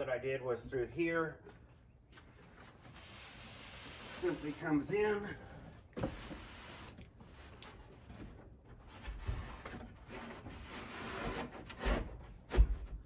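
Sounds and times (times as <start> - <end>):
wooden frame scraping: 2.6 - 13.0.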